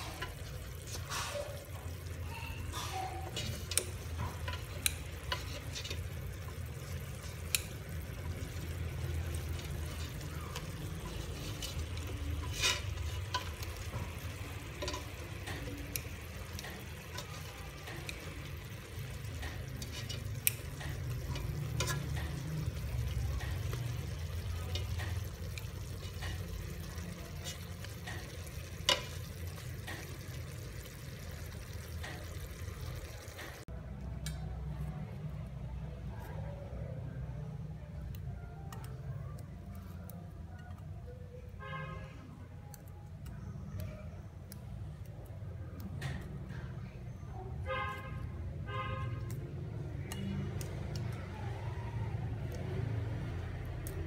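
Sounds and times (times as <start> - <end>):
chopsticks stirring chicken in pot: 0.0 - 33.6
chopsticks clicking against pot: 3.2 - 30.3, 49.1 - 51.3.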